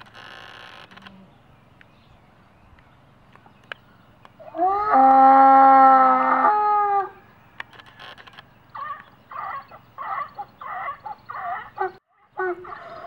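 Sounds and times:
farm animal calls: 4.4 - 13.0.

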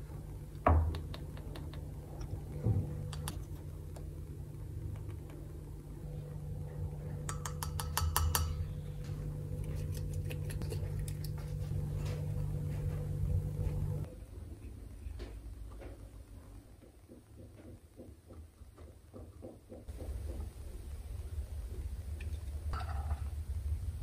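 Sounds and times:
steady low hum: 0.0 - 16.8.

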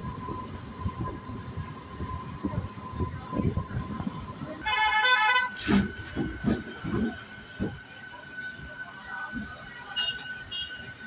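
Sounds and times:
electric train running: 0.0 - 11.0
train horn: 4.6 - 5.8, 9.9 - 11.0.

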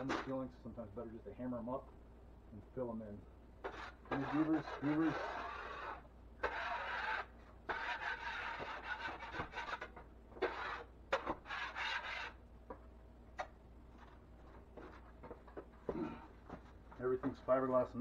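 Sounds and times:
drywall knife scraping ceiling: 3.6 - 12.4.

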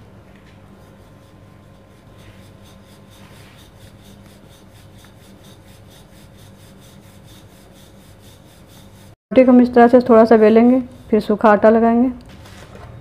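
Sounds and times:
steady low hum: 0.0 - 12.3
rolling pin rubbing over dough: 0.5 - 9.2, 10.1 - 11.3.

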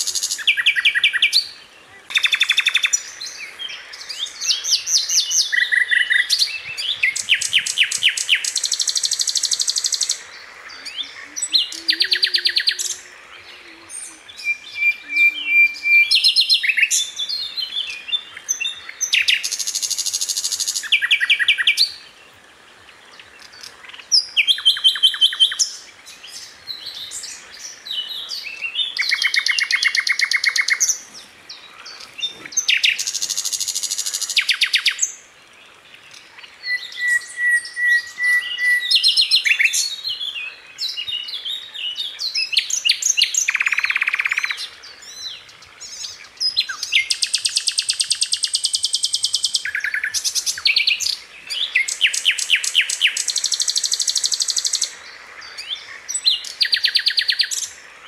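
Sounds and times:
songbird chattering trills: 0.0 - 22.0, 26.8 - 35.1, 36.1 - 57.8
bird steady whistle: 14.4 - 17.0, 36.6 - 39.7.

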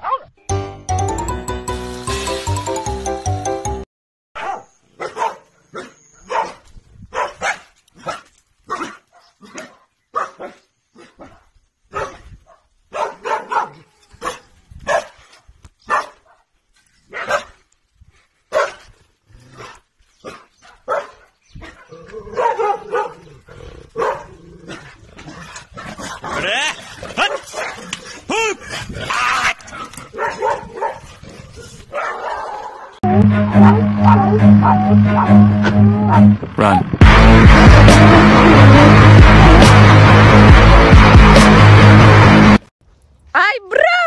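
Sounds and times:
dog barking: 0.0 - 0.3, 4.4 - 15.2, 15.8 - 16.5, 17.1 - 17.6, 18.5 - 18.9, 19.6 - 23.3, 24.0 - 24.9, 27.1 - 27.8, 30.1 - 31.1, 31.9 - 33.0, 33.6 - 36.3.

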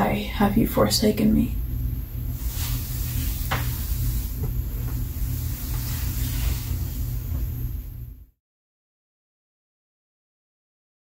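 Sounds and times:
low room rumble: 0.0 - 8.4.

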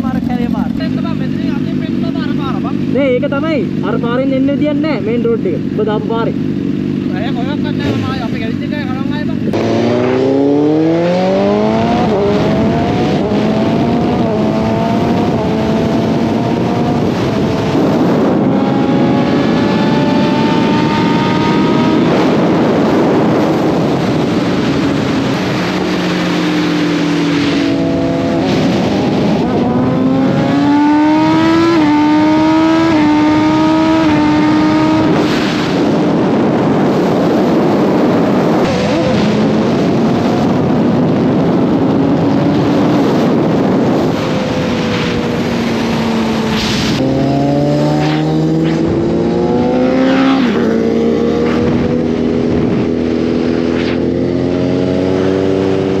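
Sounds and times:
motorcycle engine accelerating: 0.0 - 56.0
wind rushing: 9.4 - 56.0.

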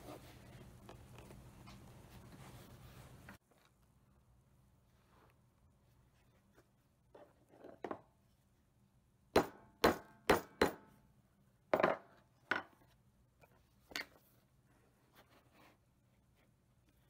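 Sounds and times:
metallic knocks on anvil: 9.4 - 10.9.

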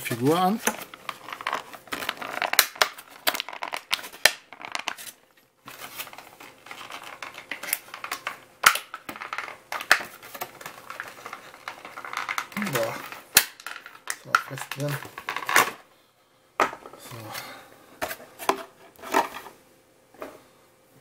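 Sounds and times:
plastic packaging crinkling: 0.7 - 15.8.

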